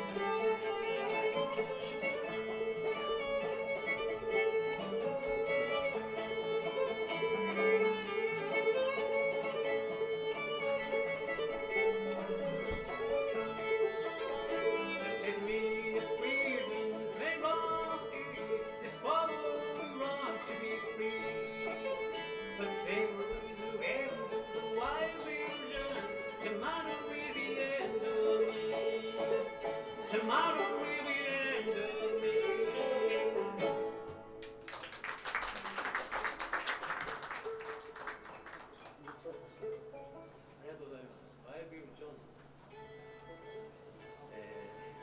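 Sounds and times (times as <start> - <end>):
droning string: 0.0 - 34.2
guitar backing: 0.0 - 34.7
fiddle playing a tune: 0.0 - 45.0
audience clapping: 34.4 - 39.8.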